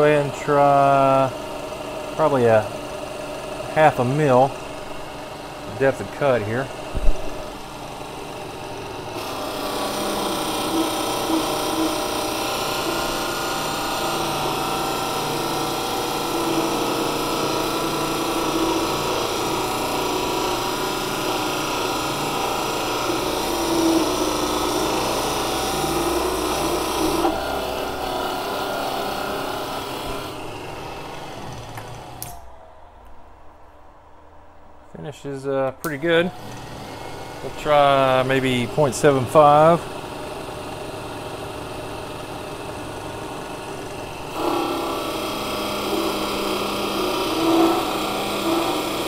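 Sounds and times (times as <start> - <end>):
hissing metal cutting noise: 0.0 - 32.6, 35.0 - 49.0
lathe motor and belt whine: 0.0 - 34.7, 35.8 - 49.0.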